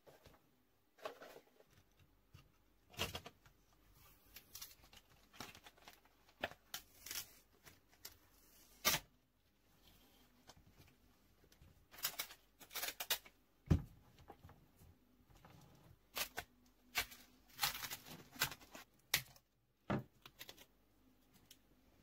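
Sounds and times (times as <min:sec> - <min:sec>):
plastic wrap crinkling and tearing: 0:04.3 - 0:09.0, 0:11.8 - 0:13.4, 0:16.1 - 0:19.4.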